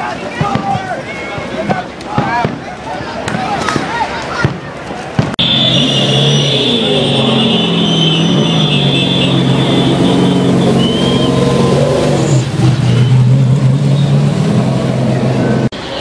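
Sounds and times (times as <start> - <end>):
race truck engine droning: 5.4 - 16.0.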